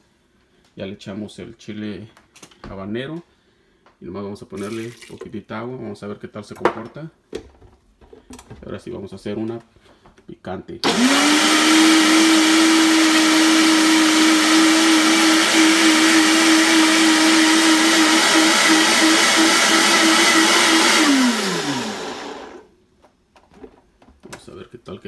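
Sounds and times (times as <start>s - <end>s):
blender running: 10.8s - 22.7s
motor whining down: 20.1s - 22.6s.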